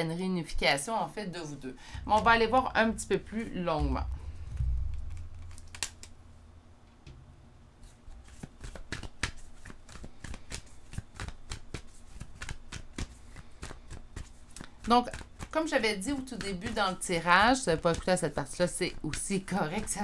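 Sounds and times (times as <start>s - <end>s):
cards being shuffled: 4.3s - 6.2s, 7.8s - 20.0s.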